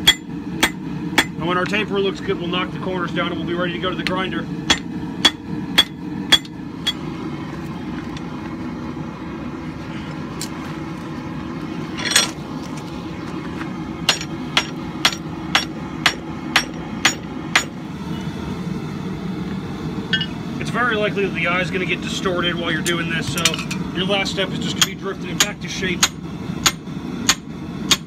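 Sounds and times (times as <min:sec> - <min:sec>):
hammer blows on hot steel: 0:00.0 - 0:01.8.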